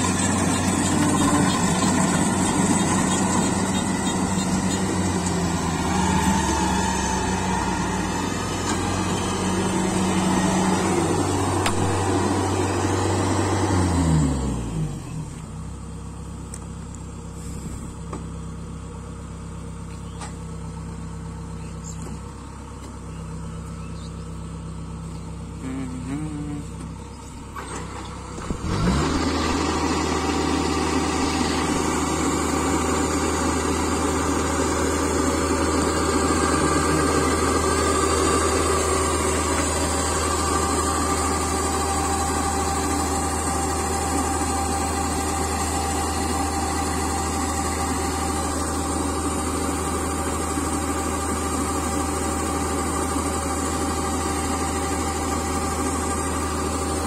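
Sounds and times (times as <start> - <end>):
combine harvester diesel engine: 0.0 - 57.0.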